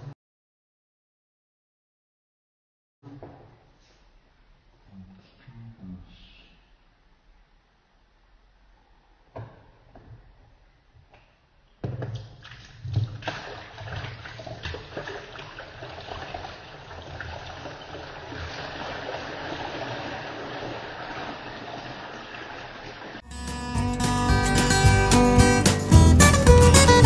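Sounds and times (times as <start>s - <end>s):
water splashing into plastic bucket: 11.8s - 23.2s.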